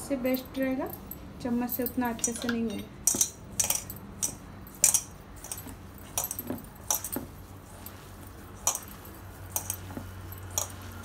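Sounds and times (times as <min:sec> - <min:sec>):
ring clinking against metal bowl: 0:00.2 - 0:11.0
hand mixing food in metal bowl: 0:01.7 - 0:11.0.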